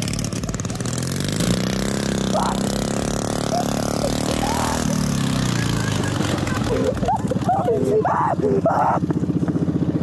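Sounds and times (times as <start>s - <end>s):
lawn mower engine driving by: 0.0s - 10.0s.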